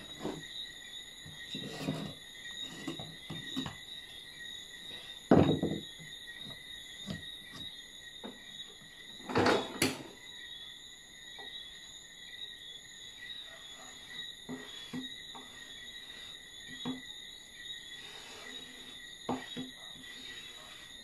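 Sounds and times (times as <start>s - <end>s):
crickets trilling: 0.0s - 21.0s
wooden boards knocking: 5.3s - 5.9s.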